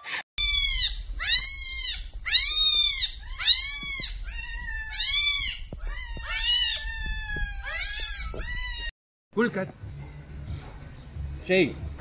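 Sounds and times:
cats meowing: 0.4s - 8.9s.

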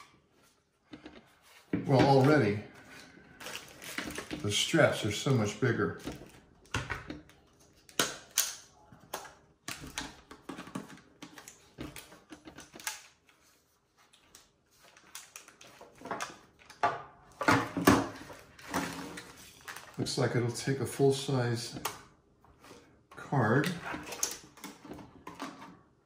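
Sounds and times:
plastic clicks and knocks: 6.0s - 13.0s.

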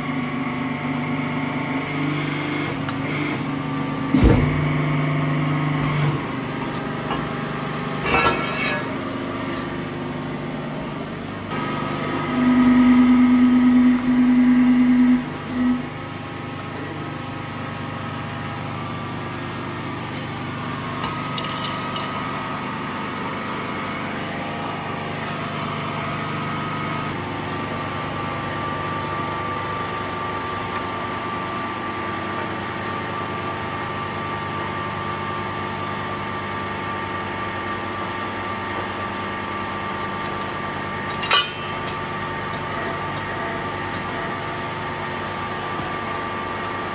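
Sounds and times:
droning pressing tone: 11.6s - 16.0s
metallic clatter: 21.0s - 22.3s.

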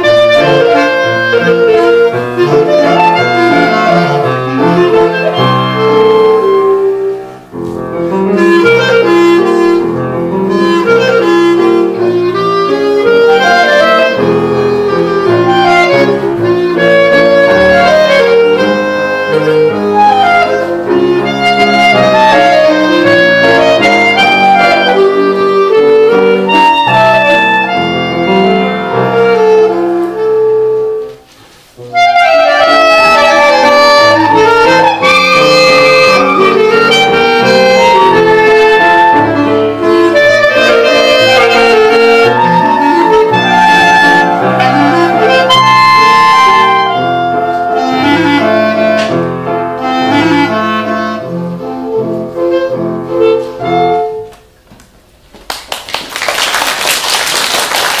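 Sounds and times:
clarinets playing in harmony: 0.0s - 7.2s, 31.9s - 49.0s
grand piano accompaniment: 0.0s - 58.0s
applause: 55.4s - 58.0s.

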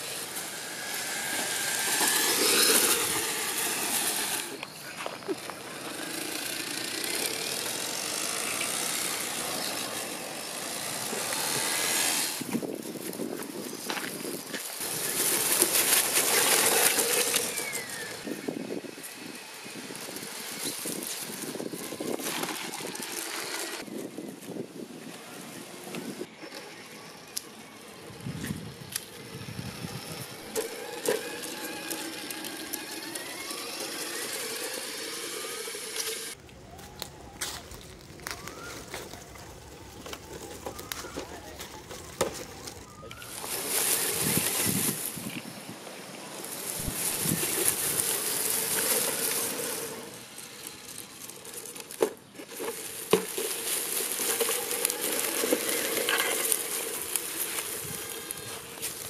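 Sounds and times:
rising high whine: 0.0s - 13.2s, 26.0s - 51.3s
dry leaves crunching under tyres: 0.0s - 59.0s
rc car motor whine: 0.0s - 59.0s.

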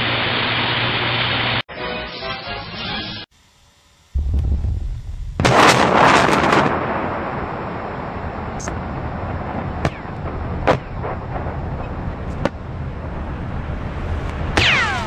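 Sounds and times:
explosion blast: 4.2s - 12.1s
low rumble: 4.2s - 14.6s
sharp crack: 9.8s - 12.6s, 14.3s - 15.0s.

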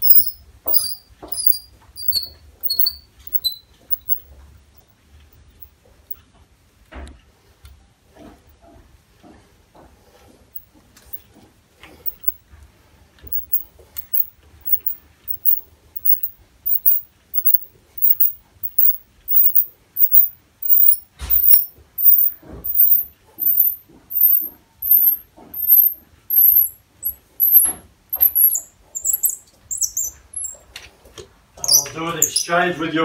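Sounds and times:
tap wrench squeaking: 0.0s - 4.2s, 12.1s - 12.4s, 13.3s - 30.6s, 31.6s - 32.4s.

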